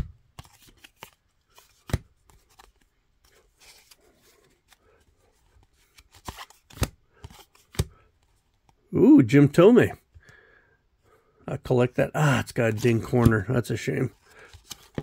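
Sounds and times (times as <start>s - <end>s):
cards sliding and rustling: 0.0s - 8.8s, 12.6s - 15.0s
card clicks and snaps: 6.0s - 8.0s.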